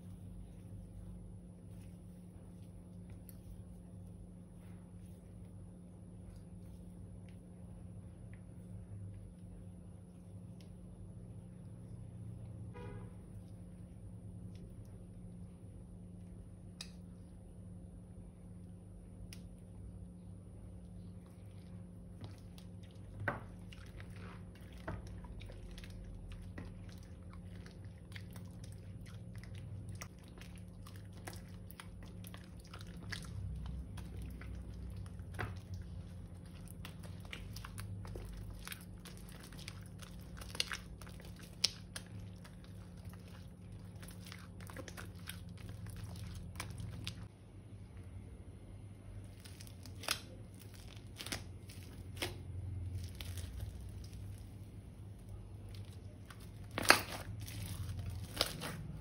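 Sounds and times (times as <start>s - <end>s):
slime squishing and crackling: 20.7s - 47.3s, 49.2s - 59.0s.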